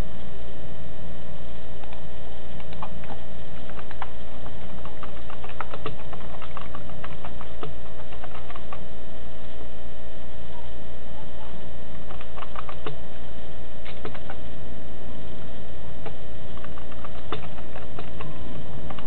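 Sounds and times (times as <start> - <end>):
steady hum: 0.0 - 19.0
keyboard typing: 2.6 - 8.8, 12.0 - 13.0, 16.0 - 19.0.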